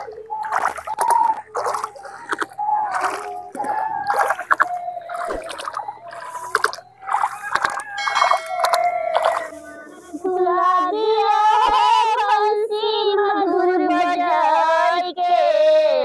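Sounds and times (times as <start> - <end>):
water splashing and sloshing: 0.0 - 10.2.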